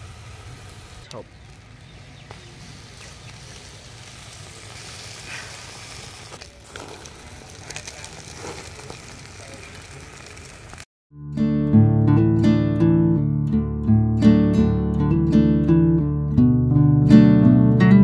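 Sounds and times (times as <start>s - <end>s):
fire popping and crackling: 0.0s - 10.9s
meat sizzling on a grill: 0.0s - 10.9s.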